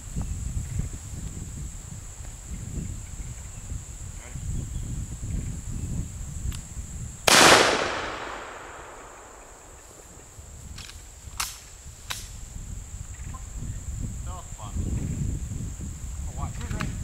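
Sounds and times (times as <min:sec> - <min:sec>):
gunshot with echo: 0:07.3 - 0:10.0.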